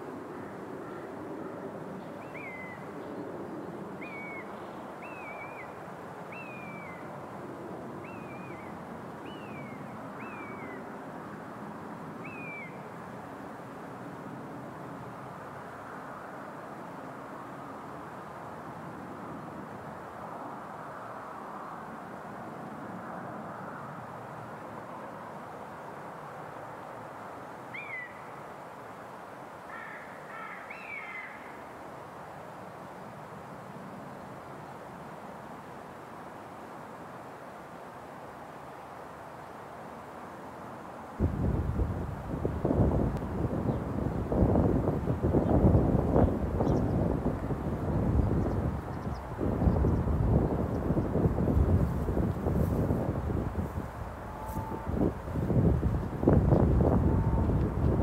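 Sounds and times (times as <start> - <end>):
steady rushing noise: 40.8 - 58.0.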